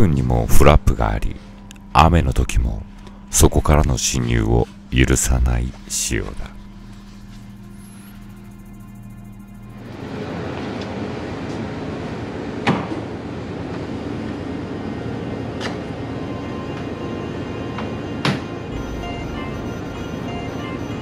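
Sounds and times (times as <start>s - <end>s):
outdoor background noise: 6.4s - 19.8s.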